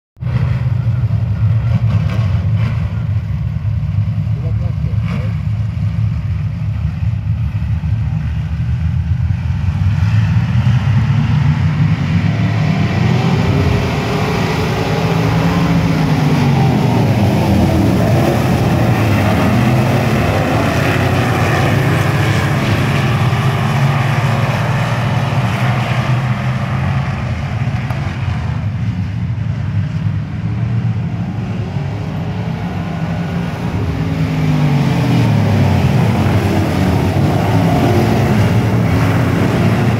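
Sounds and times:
race car engines: 0:00.2 - 0:39.9
race car passing close: 0:08.2 - 0:39.9.

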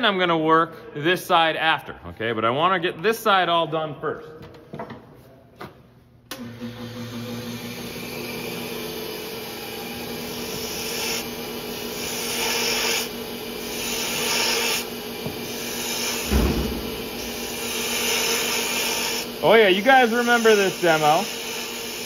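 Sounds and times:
wood lathe motor hum: 0:06.4 - 0:22.0
gouge scraping spinning wood: 0:09.7 - 0:16.4, 0:17.0 - 0:22.0
dull thump: 0:16.3 - 0:17.1.

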